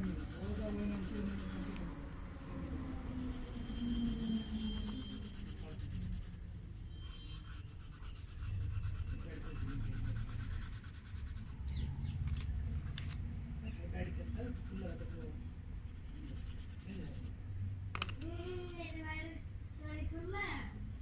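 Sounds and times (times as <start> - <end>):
crayon rubbing on paper: 0.0 - 1.9, 3.2 - 6.4, 7.0 - 11.6, 14.1 - 17.3.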